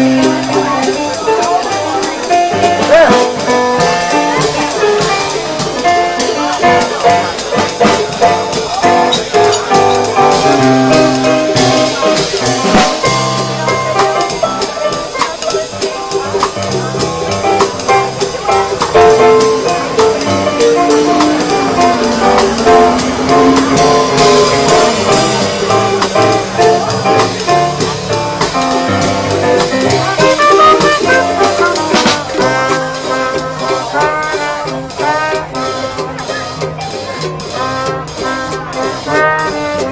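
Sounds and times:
digital piano music: 0.0s - 39.9s
steady drum beat: 0.0s - 39.9s
trombone: 0.0s - 39.9s
trumpet: 16.7s - 39.9s.

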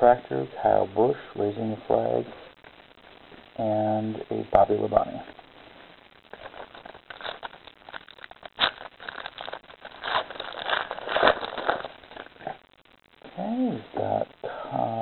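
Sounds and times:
wrapper crinkling and tearing: 6.3s - 12.6s.

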